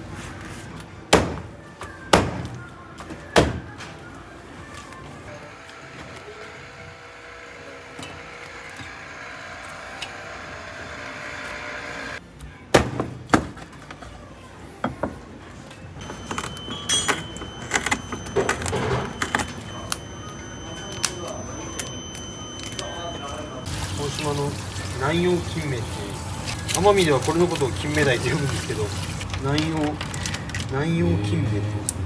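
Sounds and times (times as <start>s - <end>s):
clattering kitchen work: 16.0s - 19.7s
background music: 30.8s - 32.0s.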